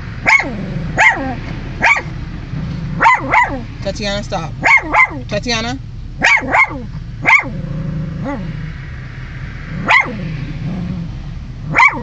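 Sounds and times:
small dog barking: 0:00.2 - 0:02.1, 0:03.0 - 0:03.7, 0:04.6 - 0:05.2, 0:06.2 - 0:07.6, 0:09.8 - 0:10.2, 0:11.7 - 0:12.0.

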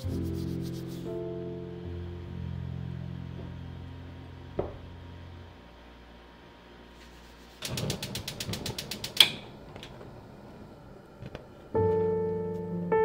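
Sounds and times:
stove igniter clicking: 0:07.6 - 0:10.0.

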